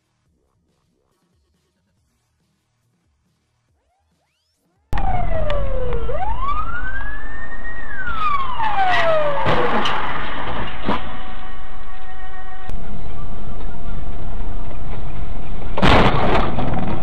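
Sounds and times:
police siren wailing: 4.9 - 14.6
low rumbling noise: 5.0 - 17.0.

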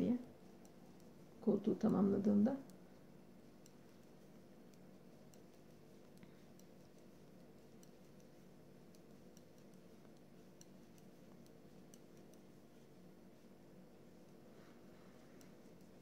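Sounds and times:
low steady hum: 0.0 - 16.0
knitting needles clicking: 3.5 - 14.3.

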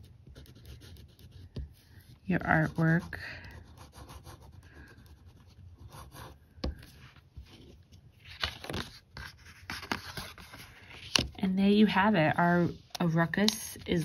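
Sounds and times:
pen scratching on paper: 0.0 - 6.4.

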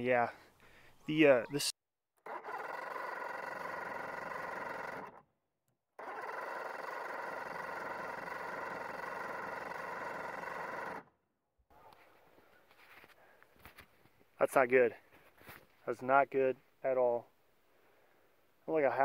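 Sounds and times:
starter motor whining: 2.2 - 11.1.

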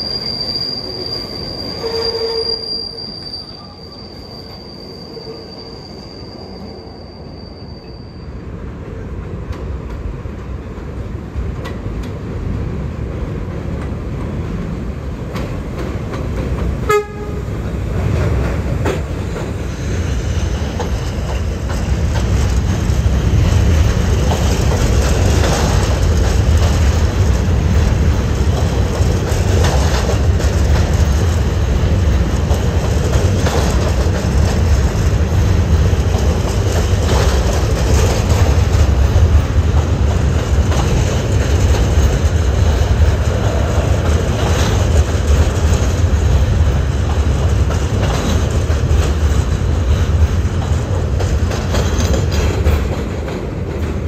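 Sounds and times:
subway wheels squealing: 0.0 - 9.4, 15.5 - 54.0
train horn toot: 1.8 - 2.8, 16.8 - 17.5
train low rumble: 7.9 - 54.0.

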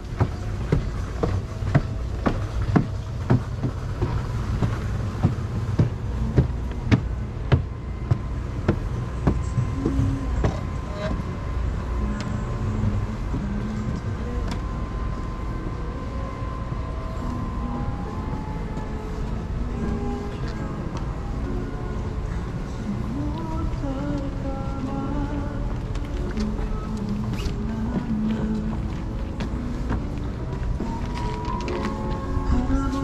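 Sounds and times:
footsteps climbing stairs: 0.0 - 11.3, 25.7 - 33.0.

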